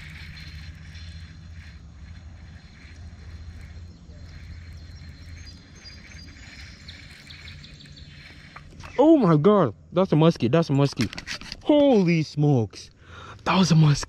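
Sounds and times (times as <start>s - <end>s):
fishing reel pulsing whir: 0.0s - 9.1s
low steady rumble: 0.0s - 10.9s.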